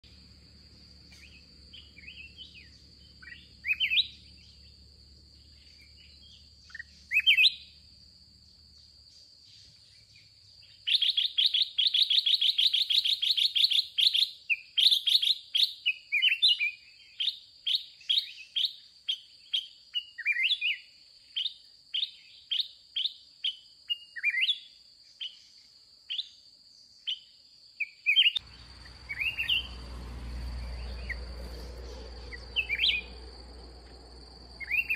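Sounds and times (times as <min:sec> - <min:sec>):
birds chirping and chattering: 0:00.0 - 0:15.0, 0:28.1 - 0:34.9
high-pitched insect drone: 0:28.4 - 0:34.9
low rumbling noise: 0:28.4 - 0:34.9.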